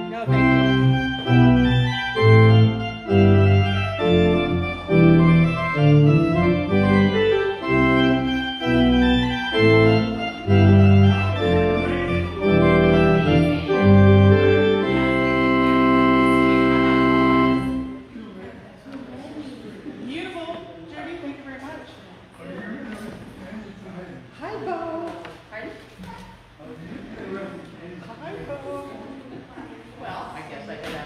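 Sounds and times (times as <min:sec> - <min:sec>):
organ playing sustained chords: 0:00.0 - 0:18.2.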